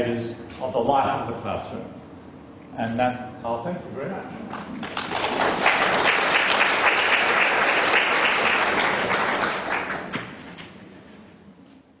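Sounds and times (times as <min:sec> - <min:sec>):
audience applauding: 0:04.6 - 0:10.7.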